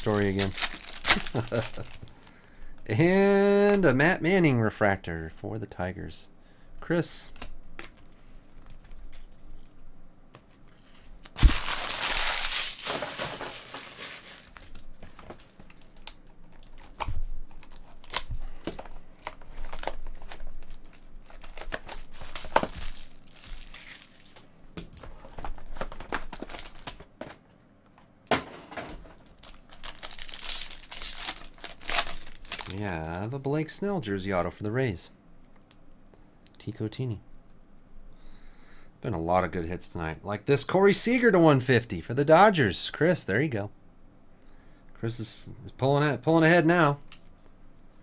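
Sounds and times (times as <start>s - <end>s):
foil wrappers crinkling and tearing: 0.0s - 2.4s, 11.3s - 24.5s, 25.1s - 27.0s, 29.2s - 33.0s.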